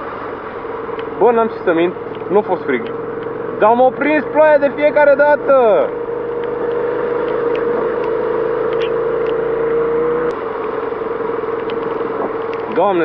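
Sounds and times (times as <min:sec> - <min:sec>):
motorcycle engine running: 0:00.0 - 0:13.0
wind and road noise: 0:00.0 - 0:13.0.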